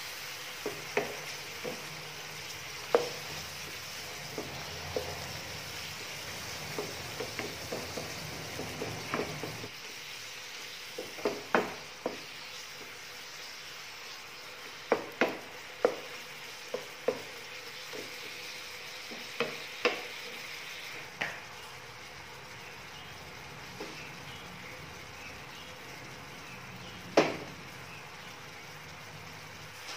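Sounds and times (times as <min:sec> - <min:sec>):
meat sizzling in oil: 0:00.0 - 0:29.9.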